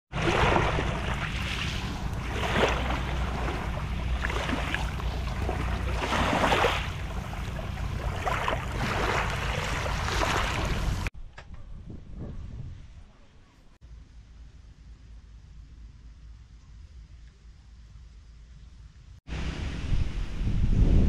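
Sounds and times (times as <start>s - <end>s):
small waves lapping on pebbles: 0.1s - 11.1s
wind on microphone: 0.2s - 13.2s, 19.3s - 21.0s.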